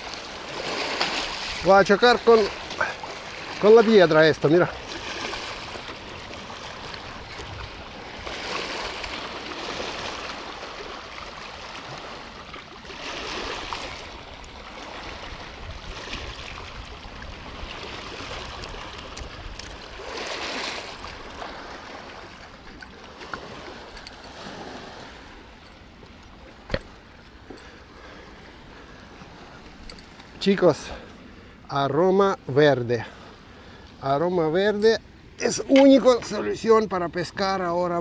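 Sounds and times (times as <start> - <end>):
river water splashing on rocks: 0.0 - 17.0.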